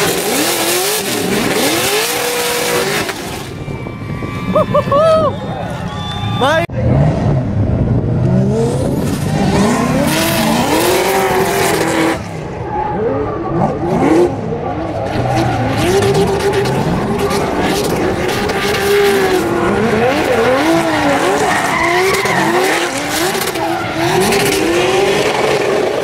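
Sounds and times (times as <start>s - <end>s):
tire squeal and screech: 0.0s - 7.2s, 8.9s - 26.0s
car engines revving: 0.0s - 26.0s.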